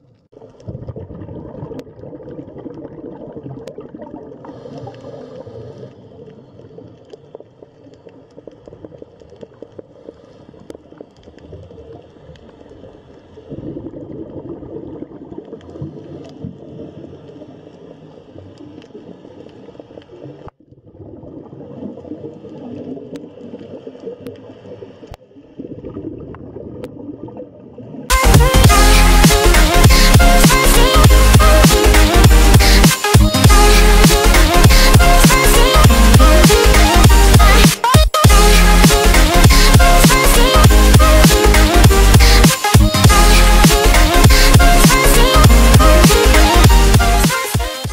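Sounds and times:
underwater rushing and gurgling: 0:00.0 - 0:47.9
loud electronic music: 0:28.1 - 0:47.9.

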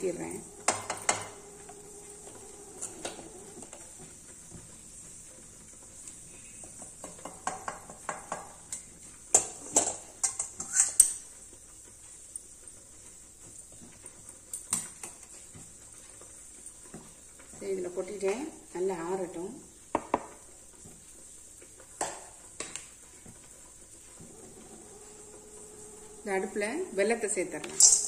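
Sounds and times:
metal spatula scraping pan: 0:09.3 - 0:11.2, 0:27.6 - 0:28.0.

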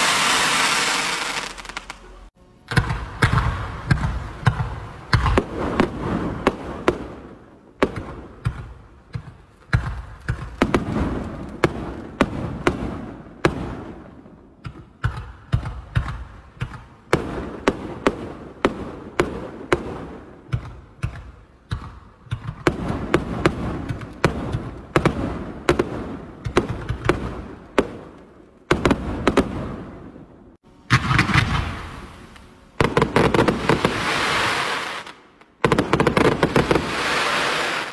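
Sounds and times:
fireworks bursting reports: 0:00.0 - 0:07.3, 0:30.7 - 0:37.9.

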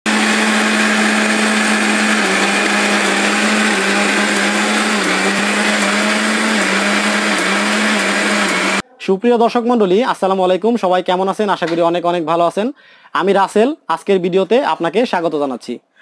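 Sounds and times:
mixer grinder whirring: 0:00.0 - 0:08.8.

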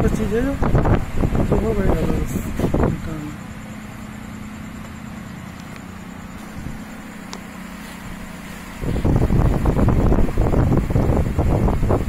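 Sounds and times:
wind rush on microphone: 0:00.0 - 0:03.5, 0:06.4 - 0:06.9, 0:07.8 - 0:12.0
low background hum: 0:00.0 - 0:12.0.

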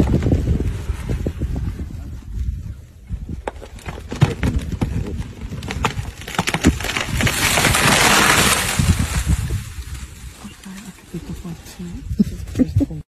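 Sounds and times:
wood cracking and snapping: 0:03.3 - 0:10.7
tree crashing down: 0:03.3 - 0:10.8.

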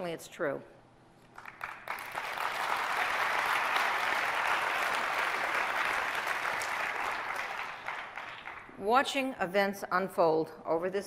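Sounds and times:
audience applauding: 0:01.3 - 0:08.7.

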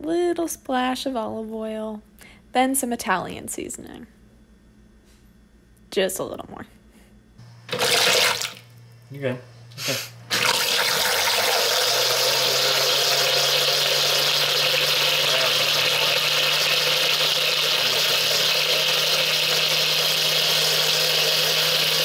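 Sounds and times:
blender whirring: 0:07.7 - 0:08.6, 0:10.3 - 0:22.0.

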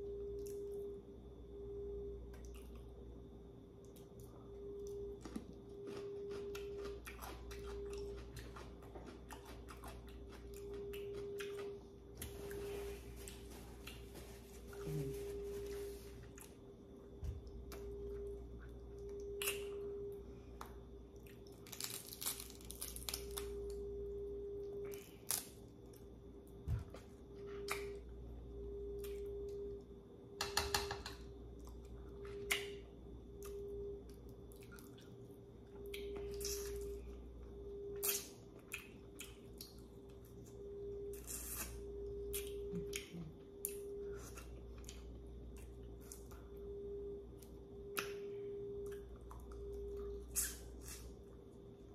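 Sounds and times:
wet chewing and smacking: 0:04.9 - 0:12.4, 0:33.4 - 0:36.9
shells cracking and crunching: 0:21.5 - 0:23.4.

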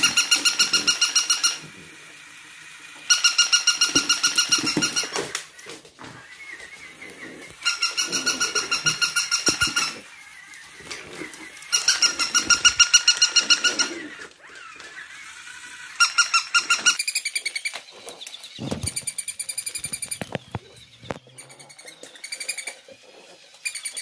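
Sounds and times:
dog toy squeaking: 0:00.0 - 0:01.6, 0:03.1 - 0:05.3, 0:07.6 - 0:10.1, 0:11.2 - 0:17.7, 0:18.6 - 0:22.8.

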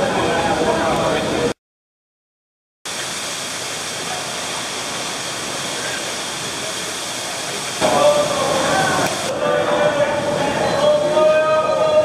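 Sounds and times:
waterfall rushing: 0:02.9 - 0:12.0.

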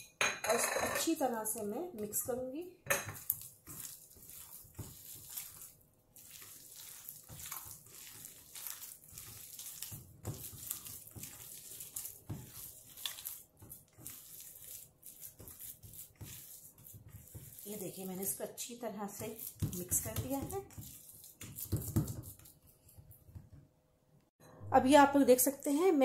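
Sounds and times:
wet squishing of kneaded meat: 0:03.2 - 0:23.5
fingers scraping metal bowl: 0:06.3 - 0:18.4.

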